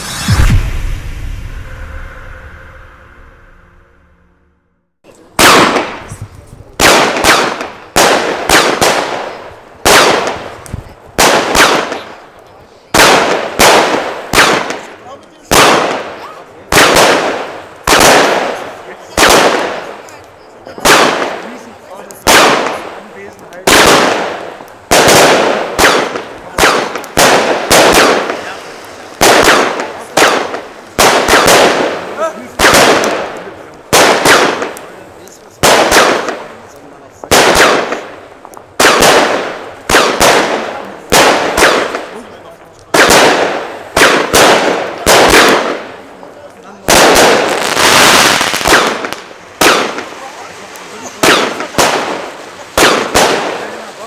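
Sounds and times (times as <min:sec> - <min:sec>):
firework stars hissing: 0:00.0 - 0:02.4, 0:26.0 - 0:32.6
firework bangs: 0:00.0 - 0:04.0, 0:05.1 - 0:54.0.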